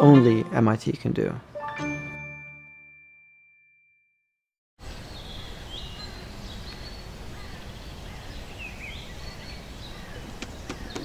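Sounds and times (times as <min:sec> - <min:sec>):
small birds chirping: 0:04.8 - 0:11.0.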